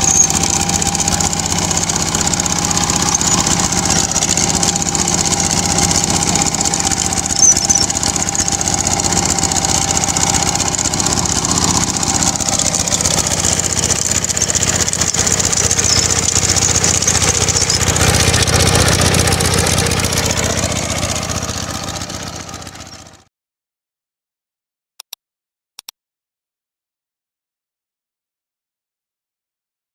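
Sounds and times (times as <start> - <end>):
rotary tiller churning soil: 0.0 - 23.2
diesel engine running: 0.0 - 23.3.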